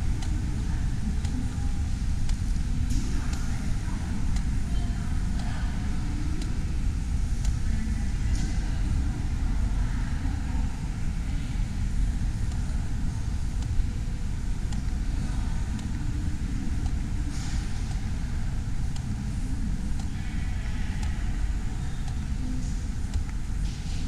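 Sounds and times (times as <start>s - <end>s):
low rumble of terminal hall: 0.0s - 24.0s
faint ticks: 1.2s - 1.4s, 22.0s - 23.8s.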